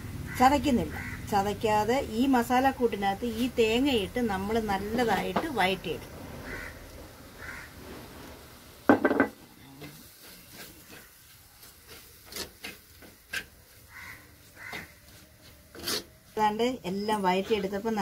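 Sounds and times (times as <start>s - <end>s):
spoon scraping in a pan: 9.8s - 18.0s.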